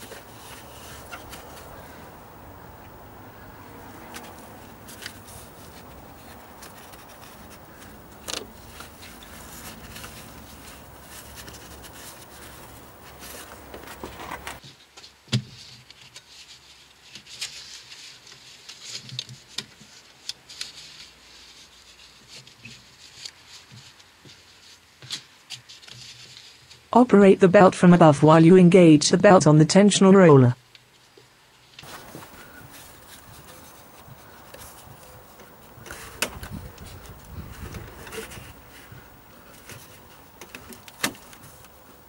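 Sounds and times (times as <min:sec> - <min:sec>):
belt rubbing and clicking: 0:00.0 - 0:02.0, 0:03.9 - 0:14.6, 0:31.8 - 0:42.0.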